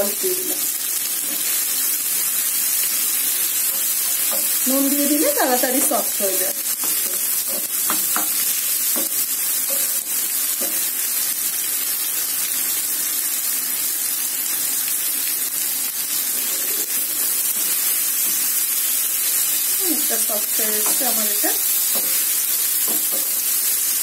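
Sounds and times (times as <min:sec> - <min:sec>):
vegetables sizzling in oil: 0:00.0 - 0:24.0
spatula knocking against pan: 0:06.8 - 0:10.9, 0:20.8 - 0:21.2, 0:21.9 - 0:22.2, 0:22.8 - 0:23.4.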